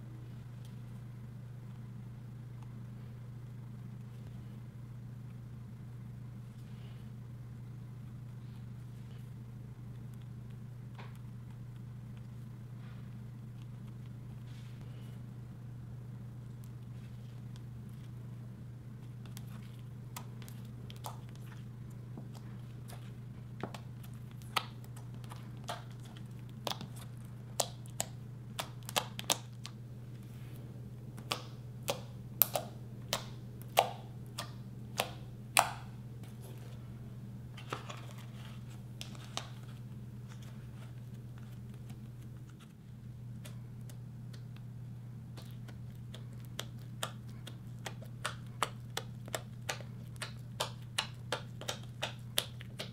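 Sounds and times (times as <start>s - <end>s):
steady low hum: 0.0s - 52.9s
sticky slime clicks and pops: 31.2s - 35.8s.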